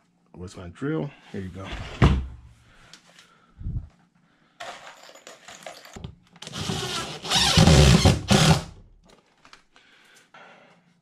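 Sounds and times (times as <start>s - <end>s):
cordless drill driving a screw: 6.4s - 8.7s.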